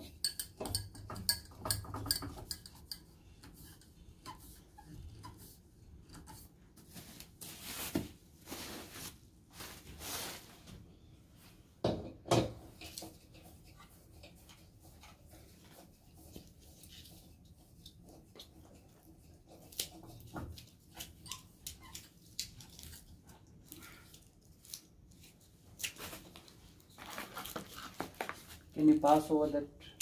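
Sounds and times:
clicks taps and rustles: 0:00.0 - 0:04.4.

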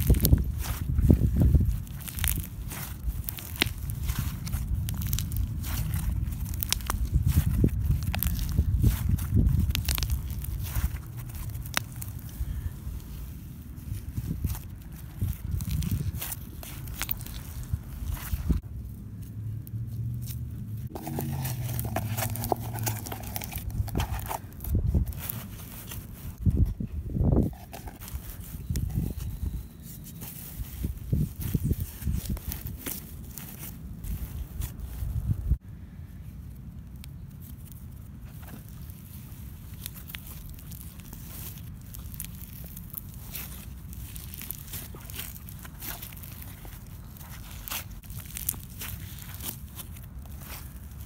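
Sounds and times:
slime crackling and popping: 0:00.0 - 0:12.6, 0:14.2 - 0:18.6, 0:20.2 - 0:26.4, 0:36.8 - 0:51.0
low rumble: 0:00.0 - 0:29.6.

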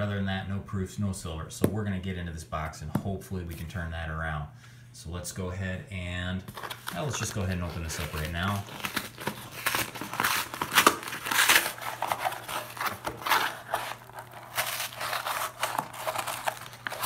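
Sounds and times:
cardboard box being torn open: 0:07.7 - 0:17.0.

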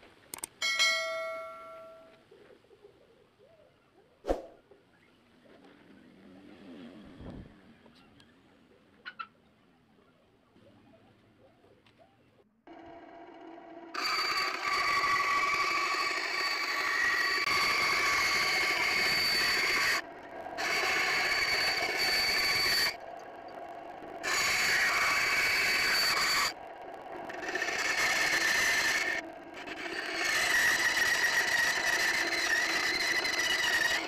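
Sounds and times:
band saw cutting sheet metal: 0:13.9 - 0:23.0, 0:24.0 - 0:34.0.

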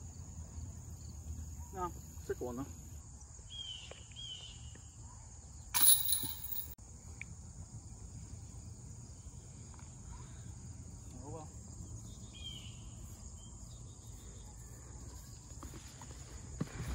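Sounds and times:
metal chains rattling: 0:05.8 - 0:06.8.

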